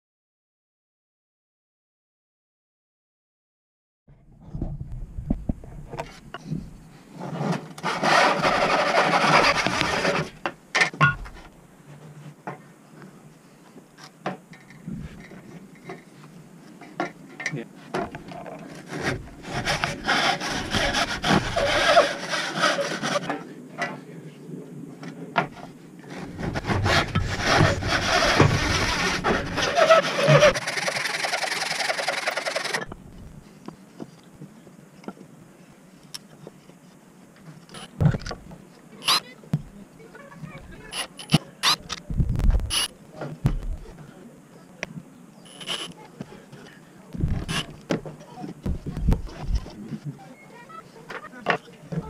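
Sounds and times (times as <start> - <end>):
handsaw cutting wood: 7.4 - 10.3, 18.7 - 23.3, 26.1 - 32.8.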